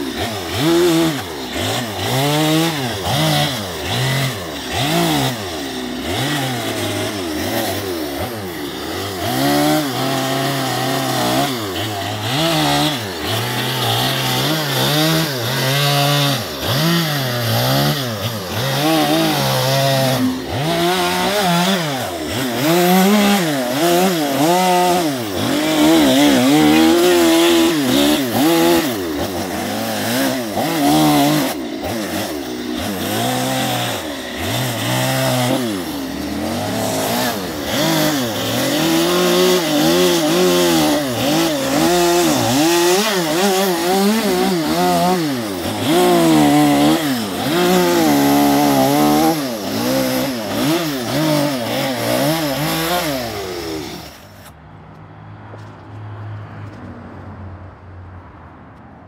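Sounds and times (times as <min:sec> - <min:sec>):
chainsaw cutting wood: 0:00.0 - 0:54.6.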